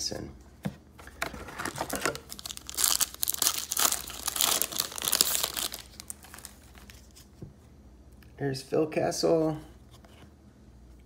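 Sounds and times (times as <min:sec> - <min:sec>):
wrapper crinkling and tearing: 0:01.3 - 0:07.3.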